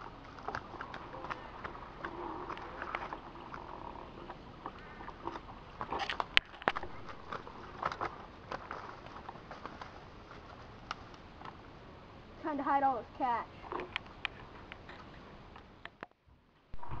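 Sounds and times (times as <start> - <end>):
twigs snapping: 4.6 - 11.6.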